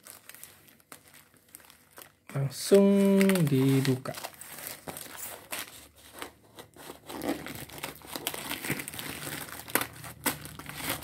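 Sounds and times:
plastic bag crinkling: 0.0 - 11.0
scissors cutting plastic: 4.8 - 11.0.

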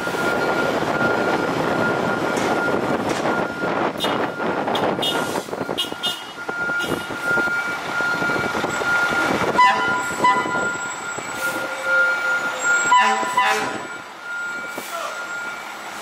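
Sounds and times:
diesel engines running: 0.0 - 16.0
high warning tone: 0.0 - 16.0
air horn blasts: 4.0 - 7.1, 9.6 - 10.8, 12.8 - 13.9.

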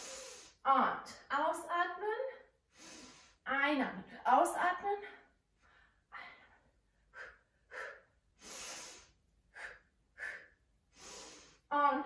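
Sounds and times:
woman breathing hard: 0.0 - 0.6, 2.7 - 3.4, 5.2 - 11.7.

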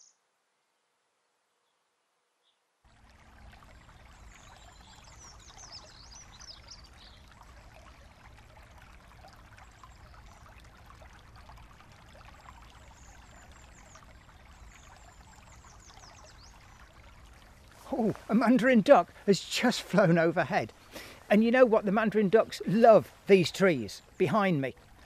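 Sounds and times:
bird chirps: 0.0 - 0.2
brook trickling: 2.8 - 25.0.

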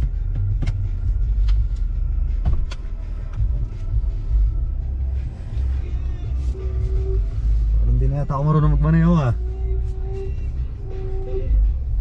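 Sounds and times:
car engine running: 0.0 - 12.0.

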